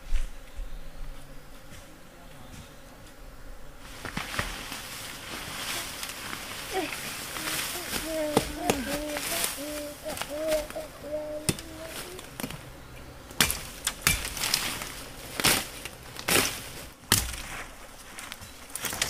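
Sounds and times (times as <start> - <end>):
machete chopping dry stalks: 13.4 - 17.8, 18.8 - 19.0.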